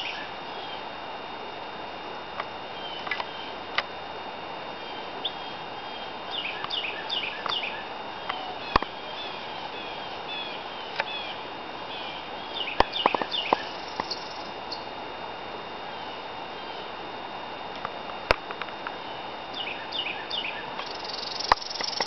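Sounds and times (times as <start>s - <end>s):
songbirds chirping: 0.0s - 1.0s, 2.4s - 4.0s, 4.7s - 15.2s, 15.8s - 17.1s, 18.7s - 22.0s
sharp clicks: 20.8s - 22.0s.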